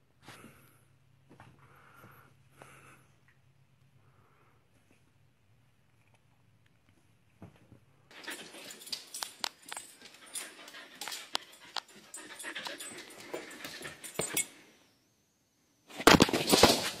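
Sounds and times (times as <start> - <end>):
clicks and rustles: 5.9 - 14.5
husky panting: 8.1 - 14.4.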